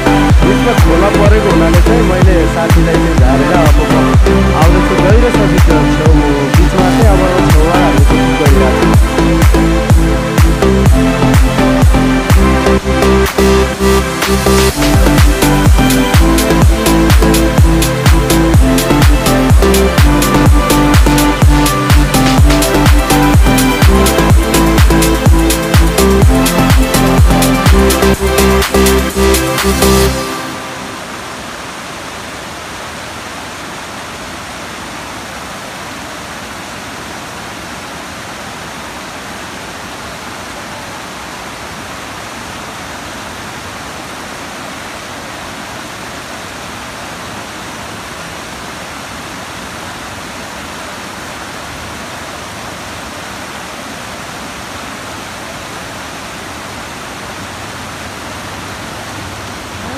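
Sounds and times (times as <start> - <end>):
stream flowing over stones: 28.5 - 59.9.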